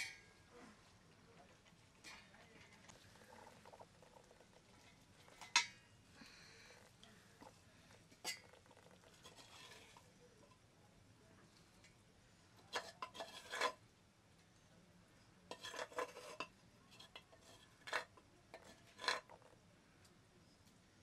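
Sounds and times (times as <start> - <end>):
spoon clinking on metal plates: 0.0 - 0.3, 5.2 - 5.8, 12.7 - 13.8, 15.5 - 19.4
metal spoon scraping clay pot: 2.0 - 5.8, 8.1 - 10.1, 12.6 - 13.8, 15.5 - 19.5.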